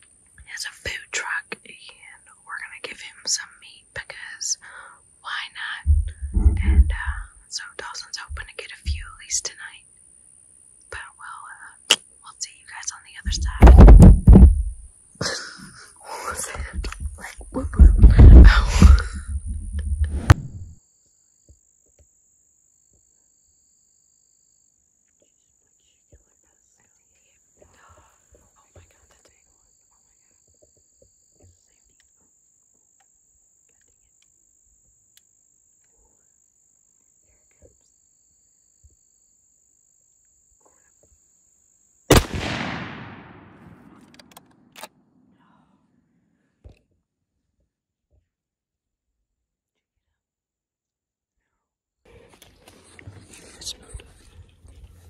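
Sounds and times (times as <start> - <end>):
faint whispering: 0.4 - 9.8, 10.9 - 13.7, 15.5 - 19.4, 25.2 - 30.5, 31.4 - 32.2, 45.3 - 45.8, 51.4 - 55.0
heavy low rumble and thumps: 5.9 - 7.3, 8.3 - 9.2, 13.3 - 14.9, 16.6 - 20.8
rifle shot with echo: 42.1 - 44.8.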